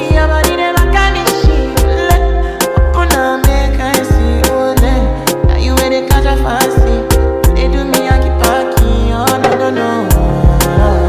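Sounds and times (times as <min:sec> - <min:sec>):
afrobeats pop song: 0:00.0 - 0:11.0.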